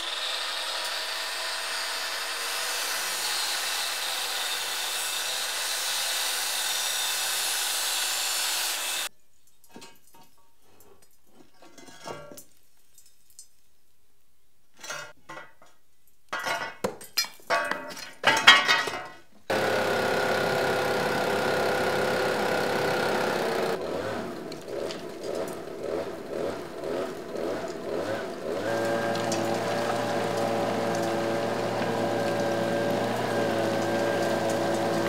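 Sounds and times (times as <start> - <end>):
power saw cutting pipe: 0.0 - 9.1, 19.5 - 35.0
rubble and metal pipe clattering: 9.5 - 13.6, 14.7 - 19.4.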